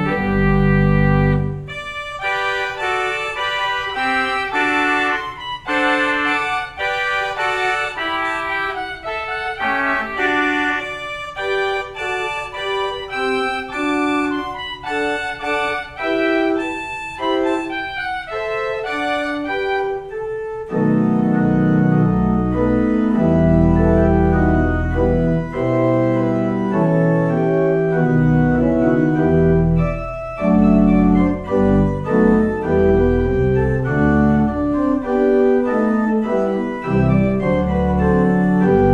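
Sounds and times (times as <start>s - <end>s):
church organ playing: 0.0s - 38.9s.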